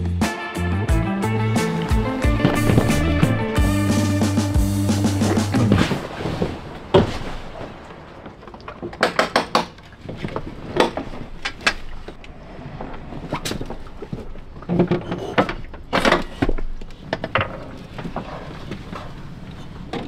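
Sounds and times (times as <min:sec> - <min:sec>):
dull thud: 0:01.6 - 0:08.0
rustling: 0:01.6 - 0:08.8
knocks and clunks: 0:01.6 - 0:12.2, 0:12.8 - 0:19.0.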